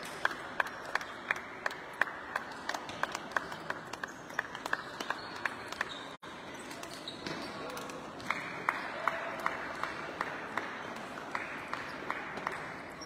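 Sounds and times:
sports hall hubbub: 0.0s - 13.0s.

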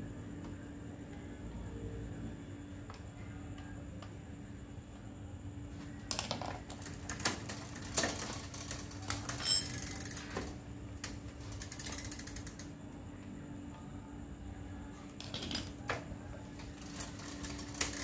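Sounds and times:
bicycle chain clattering: 6.8s - 10.5s, 11.4s - 12.7s, 16.8s - 18.0s.

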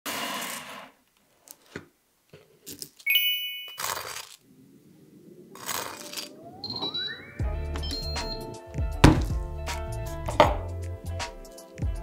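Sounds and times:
bright chime: 3.1s - 3.9s, 6.6s - 8.5s.

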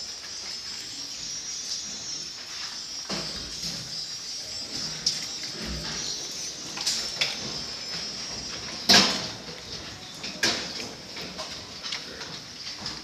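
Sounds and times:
steady high hiss: 0.0s - 13.0s
metal clanks of drinker and bars: 8.9s - 13.0s.

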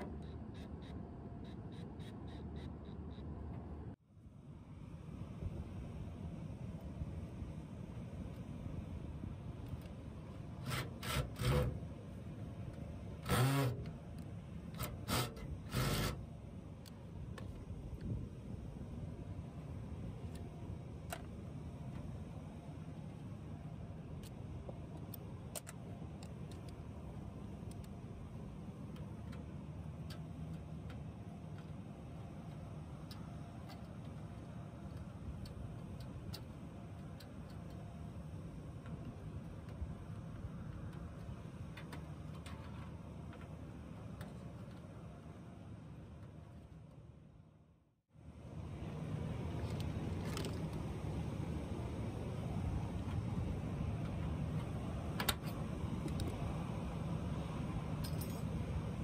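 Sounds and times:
steady low rumble: 0.0s - 59.0s
cordless drill driving screw: 14.8s - 16.2s
light clicks and ticks of handling wiring: 24.2s - 26.8s, 28.9s - 37.9s.

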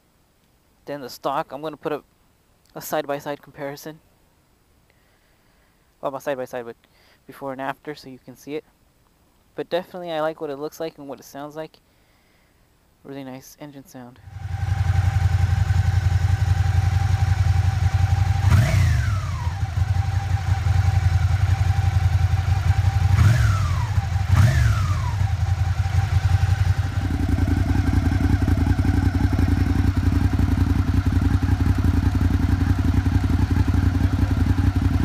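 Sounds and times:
motorcycle engine idling: 14.2s - 35.0s
motorcycle engine revving: 14.2s - 35.0s.

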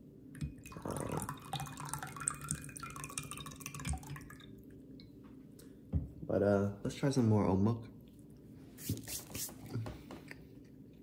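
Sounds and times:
liquid gurgling from bottle: 0.6s - 4.2s.

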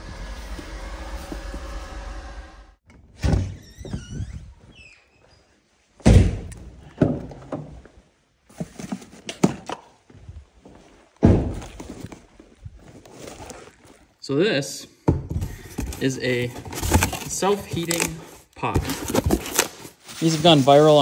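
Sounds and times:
cardboard box thunks and knocks: 11.2s - 12.0s, 16.6s - 17.4s, 18.8s - 19.7s.

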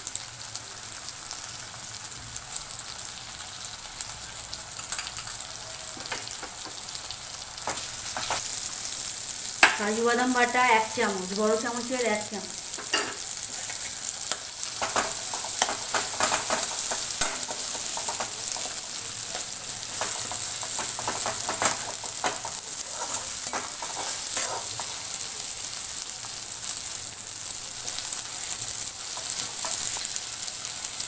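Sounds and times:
paste sizzling in oil: 0.0s - 31.0s
metal spatula scraping pan: 14.8s - 25.1s.

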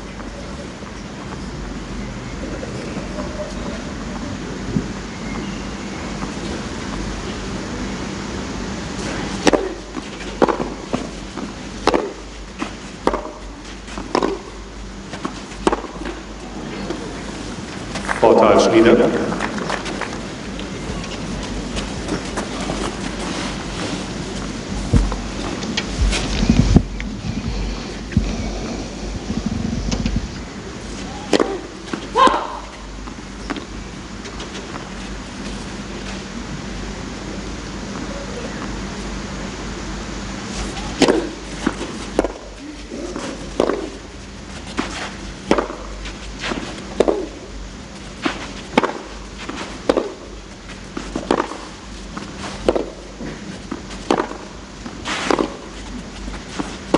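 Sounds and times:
low background murmur: 0.0s - 10.9s, 37.1s - 39.8s
tennis ball hit with racquets: 9.0s - 17.3s, 31.0s - 34.9s, 40.6s - 44.0s, 44.6s - 56.9s
faint ball and court clicks: 9.4s - 14.4s, 46.5s - 47.3s
person shouting: 31.1s - 32.7s.

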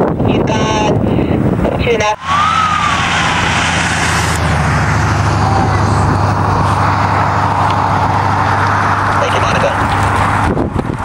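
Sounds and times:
constant rushing noise: 0.0s - 11.0s
rising and falling tone: 2.2s - 9.3s
vehicle engine running: 2.2s - 11.0s.

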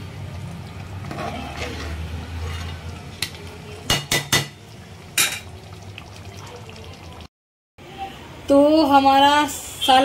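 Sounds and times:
metal spoon stirring thick curry: 0.8s - 3.6s
spoon scraping pot: 1.0s - 3.4s
spoon knocking on metal pot: 3.9s - 4.6s.

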